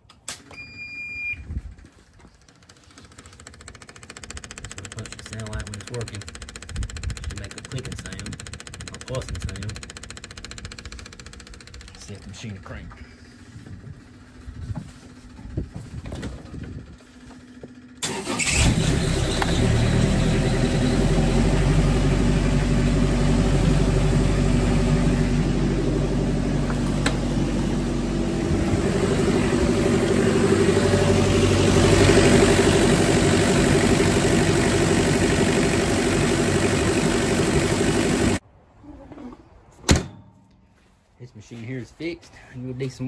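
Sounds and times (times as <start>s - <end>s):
diesel engine starting and idling: 2.5s - 13.5s, 16.6s - 38.4s.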